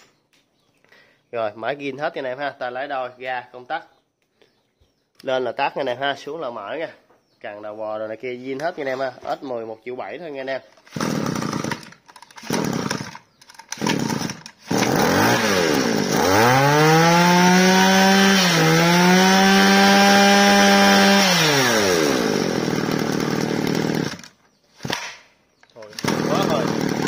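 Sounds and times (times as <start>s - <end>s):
brush cutter engine revving: 10.7s - 27.0s.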